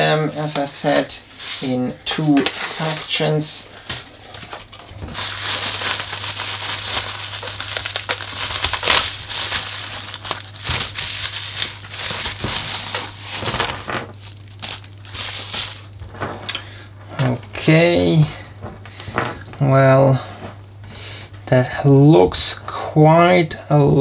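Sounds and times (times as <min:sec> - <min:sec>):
bubble wrap crinkling: 0:00.3 - 0:16.6.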